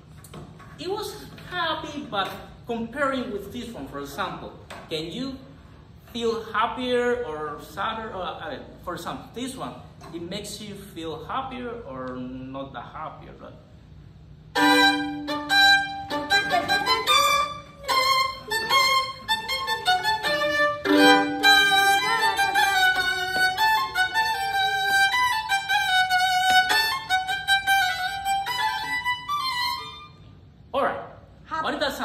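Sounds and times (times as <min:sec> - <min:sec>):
solo violin melody: 0:14.5 - 0:30.2.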